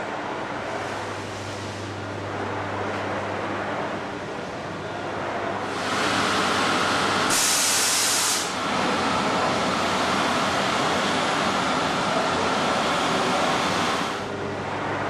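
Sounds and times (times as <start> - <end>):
machine whirring with whine: 0.0 - 15.0
hiss burst: 5.7 - 8.6.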